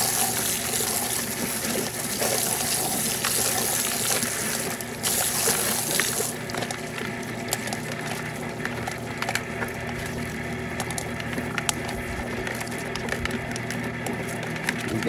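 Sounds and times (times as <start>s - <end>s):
hose nozzle spraying water: 0.0s - 6.4s
motor humming: 0.0s - 15.0s.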